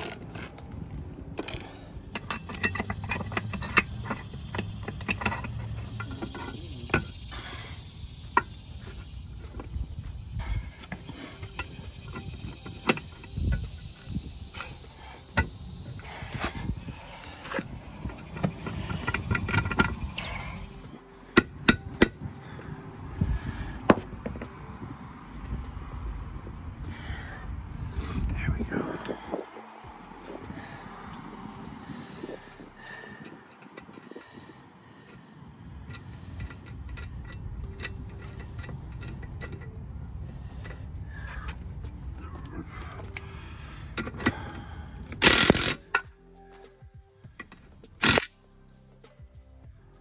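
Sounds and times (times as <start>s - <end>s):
low rumble: 0.0s - 33.2s
metal clicks and knocks: 1.4s - 7.1s
hand ratchet clicking: 1.4s - 22.3s, 35.8s - 39.8s, 43.9s - 46.1s, 47.4s - 48.8s.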